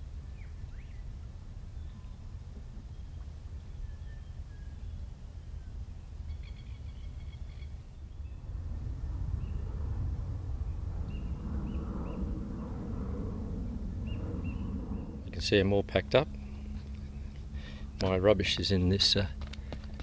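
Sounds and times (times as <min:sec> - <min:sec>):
low background rumble: 0:00.0 - 0:20.0
bird chirping: 0:00.3 - 0:01.1, 0:02.9 - 0:08.4, 0:11.0 - 0:12.3, 0:14.0 - 0:15.2
faint bird calls: 0:05.6 - 0:08.4, 0:11.0 - 0:15.3.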